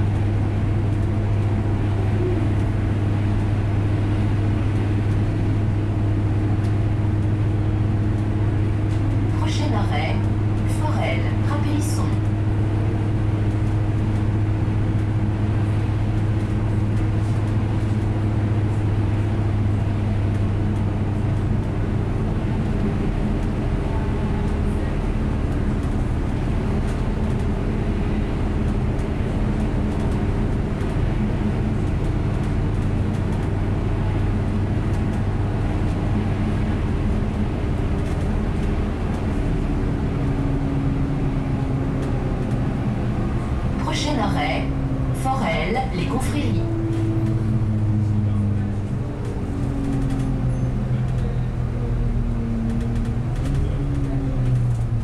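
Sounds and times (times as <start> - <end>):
bus engine droning: 0.0 - 55.0.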